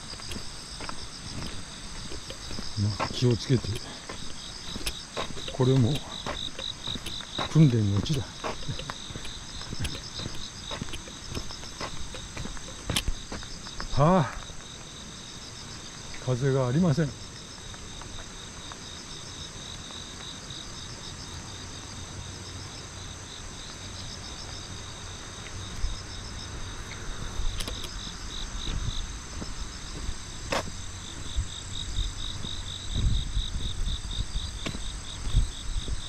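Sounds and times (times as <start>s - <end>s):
high-pitched insect drone: 0.0s - 15.2s
crickets chirping: 0.0s - 36.0s
low rumbling bumps: 27.1s - 36.0s.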